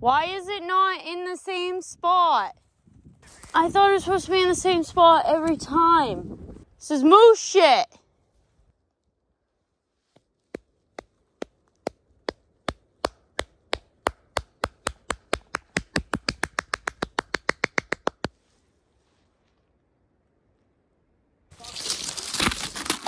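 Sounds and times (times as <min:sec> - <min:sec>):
hands clapping: 0:14.1 - 0:18.3.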